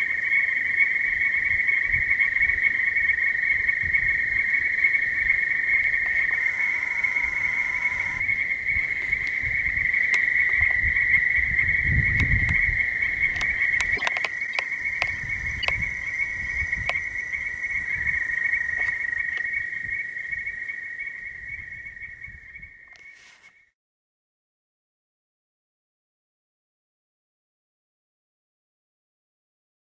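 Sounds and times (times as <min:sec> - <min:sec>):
frogs trilling: 0:00.0 - 0:23.4.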